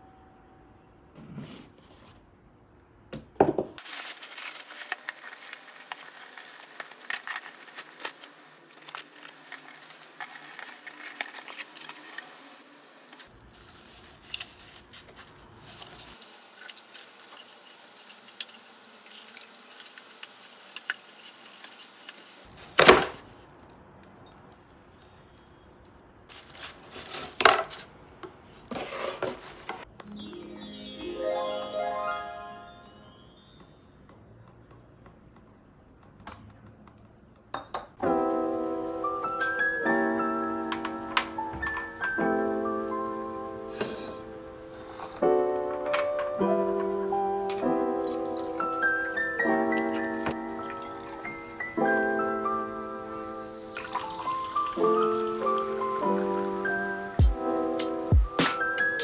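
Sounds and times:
cardboard packaging handled: 0:03.8 - 0:12.3, 0:13.2 - 0:23.2, 0:26.3 - 0:27.9
tissue paper crinkling: 0:03.8 - 0:12.4, 0:13.2 - 0:22.8, 0:26.3 - 0:27.9.

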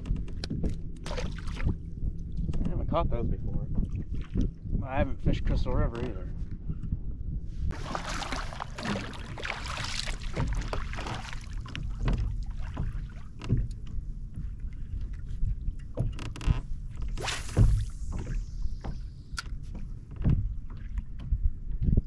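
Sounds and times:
water and wind rumble: 0:00.0 - 0:22.0
fishing rod swish: 0:17.0 - 0:19.5
fishing line whistling off reel: 0:17.2 - 0:19.5.

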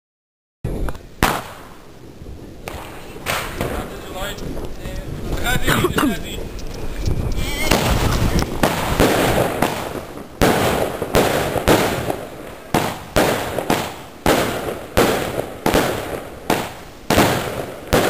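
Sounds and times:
firework cake bangs: 0:00.7 - 0:01.8, 0:02.6 - 0:04.4, 0:07.6 - 0:18.0.

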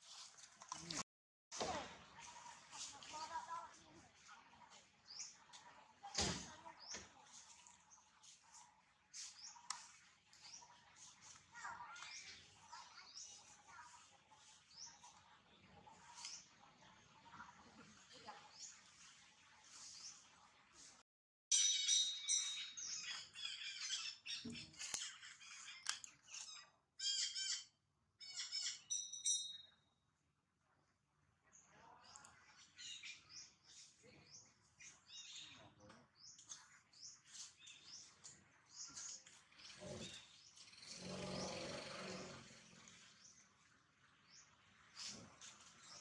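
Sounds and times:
faint bird chirps: 0:21.5 - 0:30.0
high-pitched animal calls: 0:26.4 - 0:29.0.

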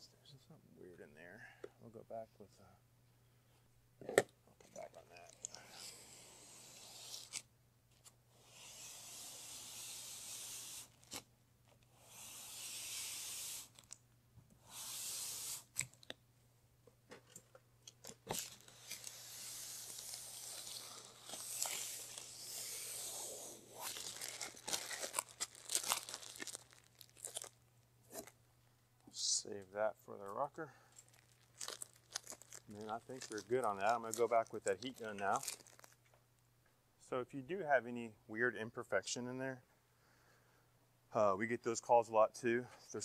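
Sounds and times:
paper mask ripping off vinyl: 0:05.4 - 0:07.4, 0:08.4 - 0:11.2, 0:18.1 - 0:27.5.

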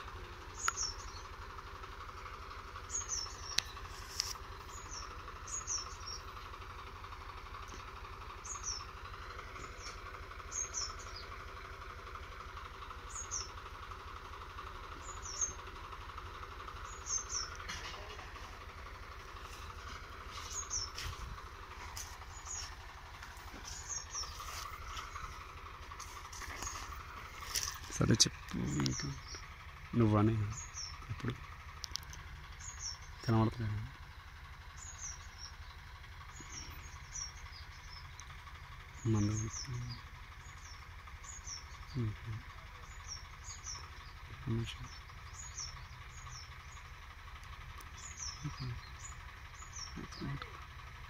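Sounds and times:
high bird chirps: 0:00.0 - 0:06.9, 0:07.6 - 0:47.0, 0:47.7 - 0:50.4
distant tractor engine running: 0:00.0 - 0:51.0.

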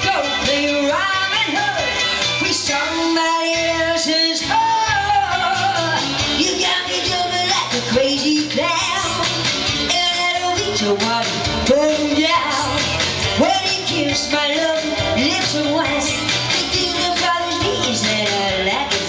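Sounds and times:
upbeat backing track: 0:00.0 - 0:19.0
woman singing into a microphone: 0:00.0 - 0:19.0.

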